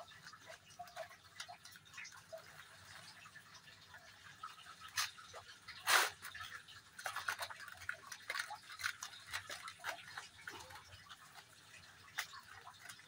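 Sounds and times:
soil and plastic tray crackling: 4.4 - 13.0.

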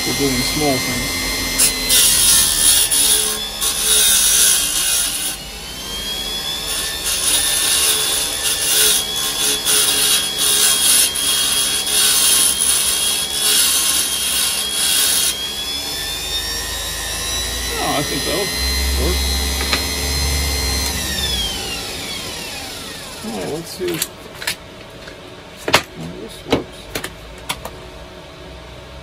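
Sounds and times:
nail rasping on grinding wheel: 0.0 - 5.4, 6.6 - 15.5
bench grinder whining: 0.0 - 24.1.

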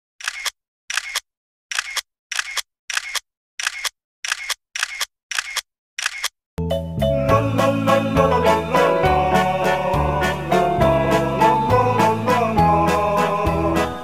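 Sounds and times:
music: 6.6 - 14.0.

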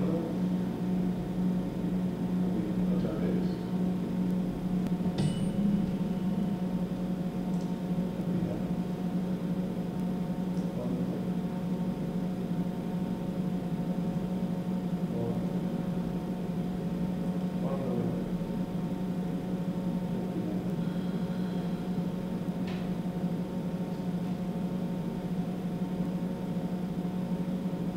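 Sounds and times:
steady low hum: 0.0 - 27.9
faint high steady tones: 4.9 - 7.4.

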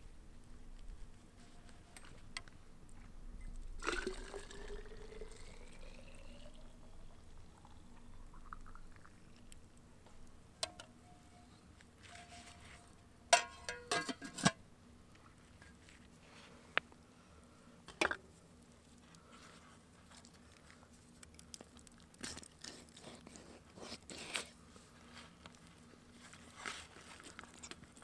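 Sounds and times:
liquid pouring into a vessel: 3.8 - 9.5.

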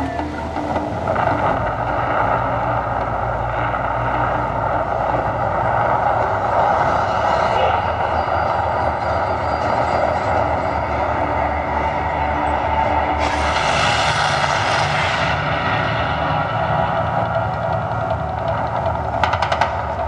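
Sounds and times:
deep rumbling roar: 0.0 - 20.0
flame jets burning: 0.4 - 9.2, 12.2 - 19.2.

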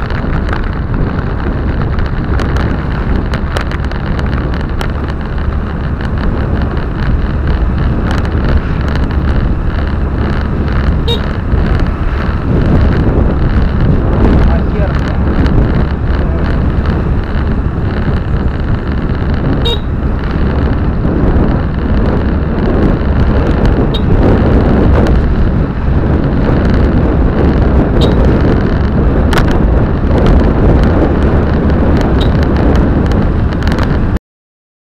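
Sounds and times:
car driving rumble: 0.0 - 34.2
sharp clicks or knocks: 28.0 - 29.6.

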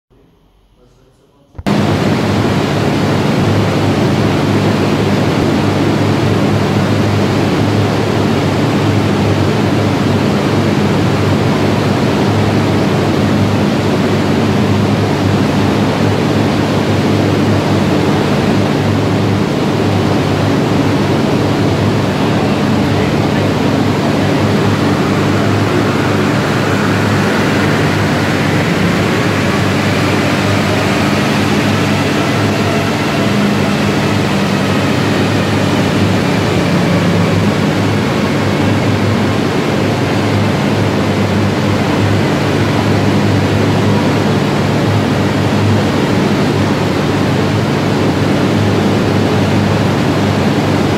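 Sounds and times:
cooling fan rushing noise: 0.2 - 50.9
faint rising whine: 0.2 - 50.9
car engine hum on rollers: 1.6 - 50.9.

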